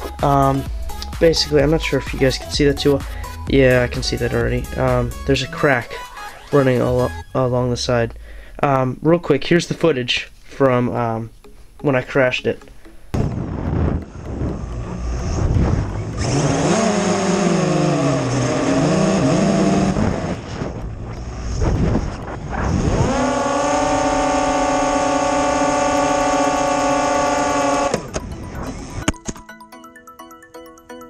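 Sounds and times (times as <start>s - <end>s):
drone propellers whining: 12.6s - 29.2s
wind rushing over microphone: 13.2s - 16.8s, 19.0s - 24.7s.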